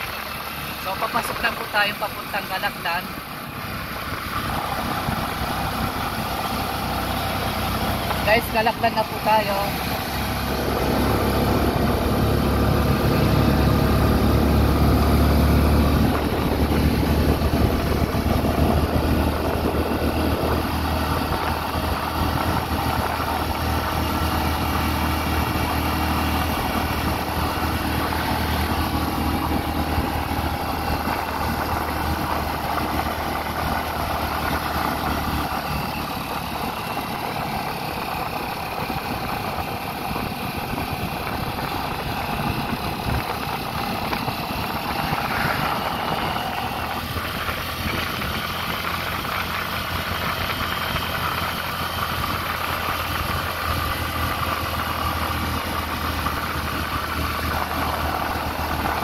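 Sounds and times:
vehicle engine rumbling: 0:00.0 - 0:59.0.

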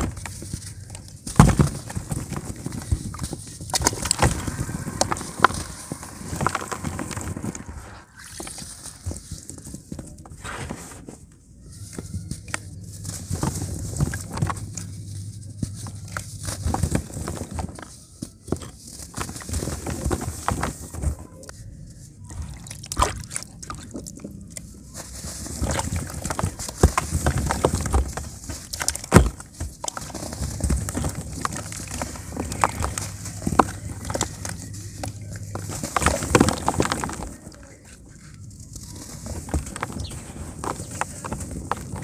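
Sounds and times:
powder trickling into plastic tub: 0:01.4 - 0:09.5
water sloshing and dripping: 0:22.3 - 0:24.3
hands crumbling dry cement: 0:25.5 - 0:42.0.

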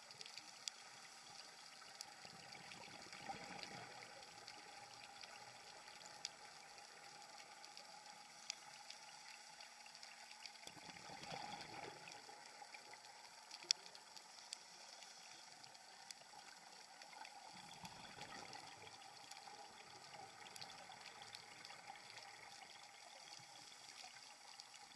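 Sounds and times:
low underwater hiss: 0:00.0 - 0:24.9.

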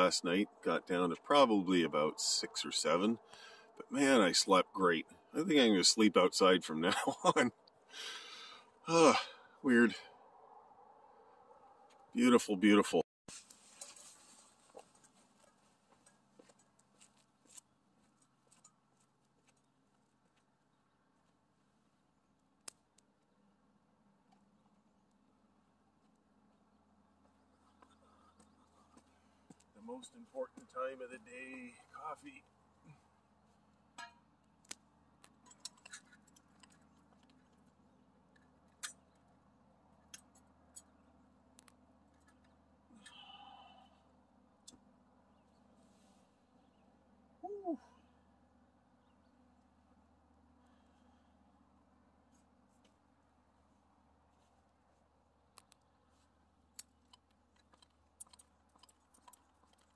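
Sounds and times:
faint clicks and metallic ticks: 0:33.7 - 0:43.3, 0:55.5 - 0:59.9
small scattered clicks: 0:56.7 - 0:59.9.

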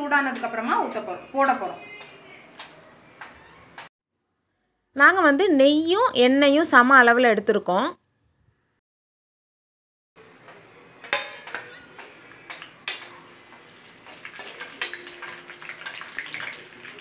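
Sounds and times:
spices sizzling in oil: 0:10.2 - 0:17.0
ladle clanking: 0:11.1 - 0:12.0
metal ladle scraping a pan: 0:11.2 - 0:12.2, 0:14.0 - 0:16.6.

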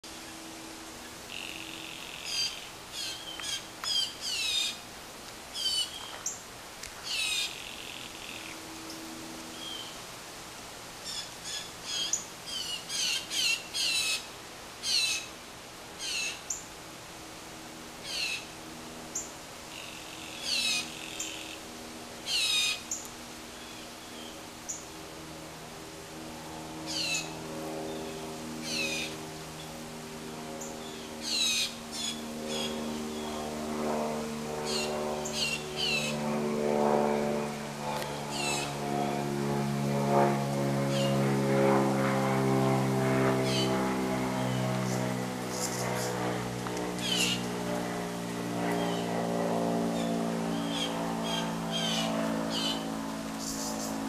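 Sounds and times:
long steady buzzes: 0:00.0 - 0:54.0
blue jays calling harshly: 0:26.9 - 0:28.0, 0:28.6 - 0:29.1, 0:30.9 - 0:33.3, 0:34.7 - 0:36.1, 0:47.0 - 0:47.4.

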